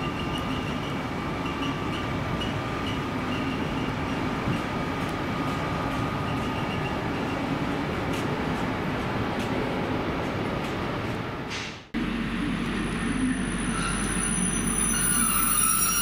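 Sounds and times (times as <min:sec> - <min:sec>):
train rumbling past: 0:00.0 - 0:16.0
thin high whine: 0:12.2 - 0:16.0.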